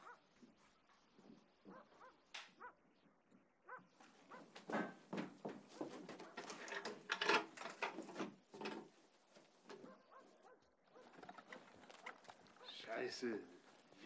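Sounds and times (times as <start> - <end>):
dog barking: 0.0 - 2.9, 3.6 - 4.6, 5.7 - 6.6, 9.7 - 11.3, 12.5 - 12.9.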